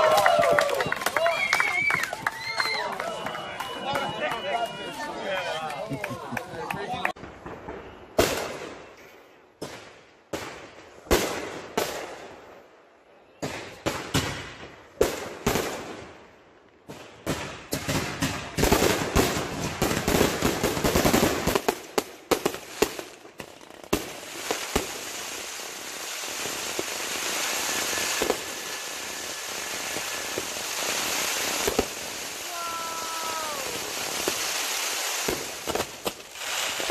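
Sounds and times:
fireworks crackling: 0:00.0 - 0:09.0, 0:16.8 - 0:36.9
fireworks bangs: 0:06.6 - 0:09.0, 0:13.4 - 0:16.2, 0:16.8 - 0:36.9.

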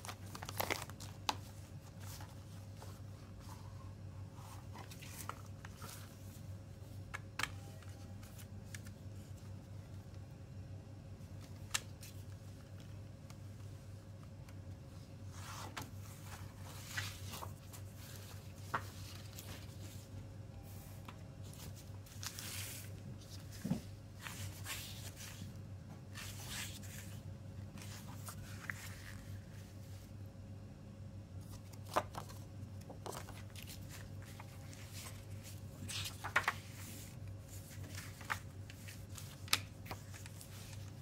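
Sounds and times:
paper rustling: 0:00.0 - 0:06.4, 0:15.4 - 0:20.1, 0:21.4 - 0:30.1, 0:31.4 - 0:41.0.

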